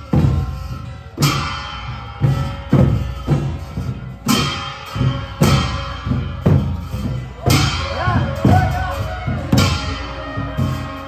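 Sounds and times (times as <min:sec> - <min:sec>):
large drums beating: 0:00.0 - 0:11.0
ringing metal crashes: 0:00.0 - 0:11.0.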